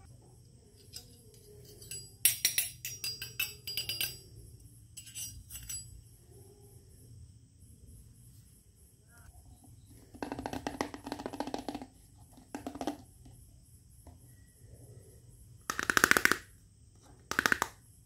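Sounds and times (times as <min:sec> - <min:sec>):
plastic toy pieces clicking: 0:15.7 - 0:16.5, 0:17.3 - 0:17.8.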